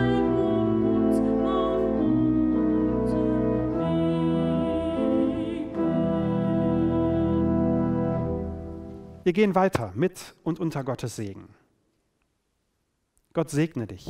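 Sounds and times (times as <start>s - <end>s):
solo voice singing with vibrato: 0.0s - 7.9s
pipe organ playing hymn: 0.0s - 9.2s.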